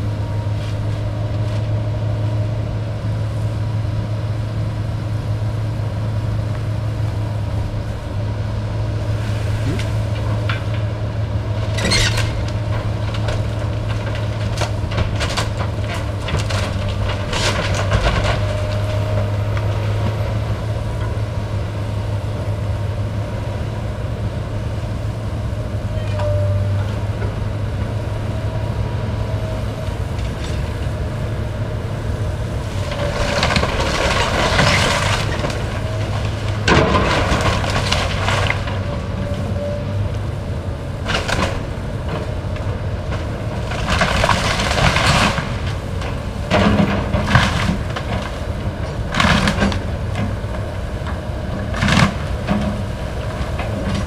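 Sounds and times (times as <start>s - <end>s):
excavator diesel engine running: 0.0s - 54.0s
house structure cracking and crashing: 11.8s - 19.1s, 32.8s - 38.9s, 41.0s - 50.2s.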